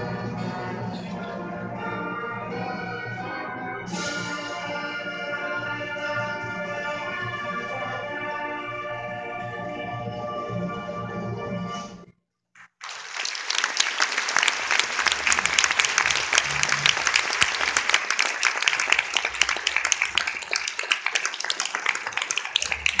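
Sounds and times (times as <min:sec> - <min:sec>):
audience applauding: 0:12.6 - 0:23.0.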